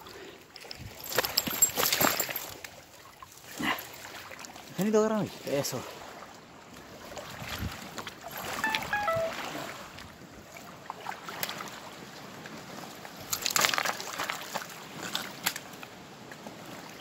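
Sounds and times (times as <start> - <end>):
handling on stony bank: 0.0 - 17.0
falling whistle: 8.6 - 9.4.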